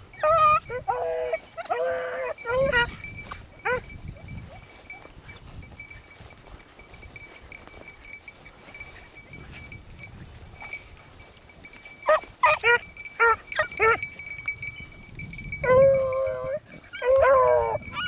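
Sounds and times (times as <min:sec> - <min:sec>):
dog baying: 0:00.2 - 0:03.0, 0:03.6 - 0:03.9, 0:12.0 - 0:14.1, 0:15.6 - 0:18.0.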